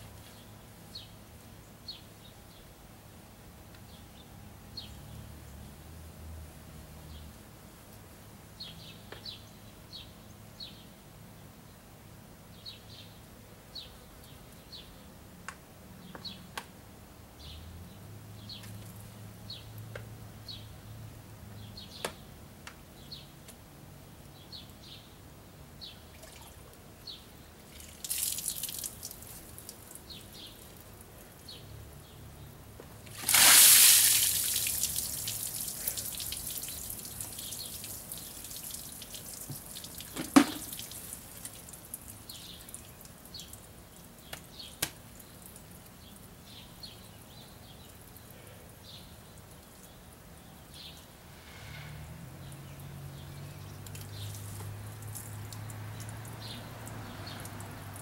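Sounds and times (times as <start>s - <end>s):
liquid splashing and dripping: 27.7s - 30.5s, 33.1s - 44.3s, 53.8s - 58.0s.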